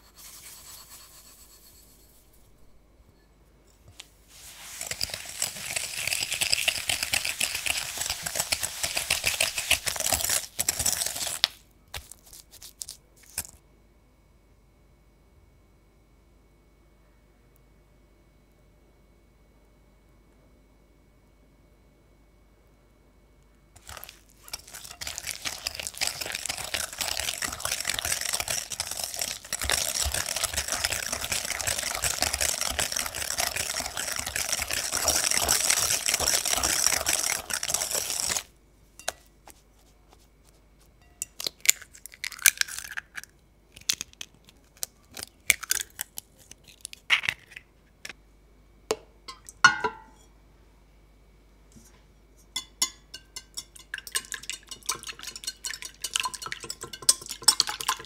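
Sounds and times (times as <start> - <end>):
whisk beating in glass bowl: 0.0 - 2.4, 4.4 - 11.4, 23.8 - 39.2, 52.6 - 58.0.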